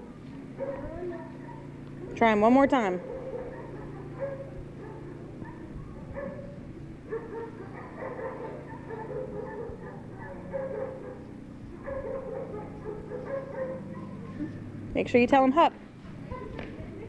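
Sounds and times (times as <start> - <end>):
dog whining and yipping: 3.0 - 11.2, 11.8 - 14.6.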